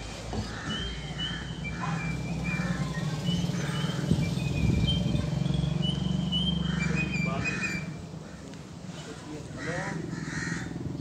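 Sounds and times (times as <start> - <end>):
small birds chirping: 0.4 - 8.6.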